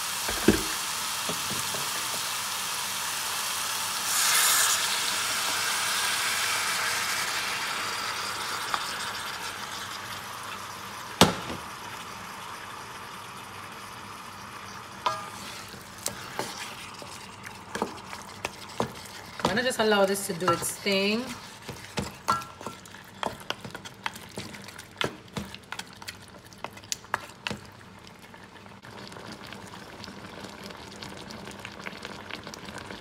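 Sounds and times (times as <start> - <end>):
meat sizzling in a metal pot: 0.0 - 24.0.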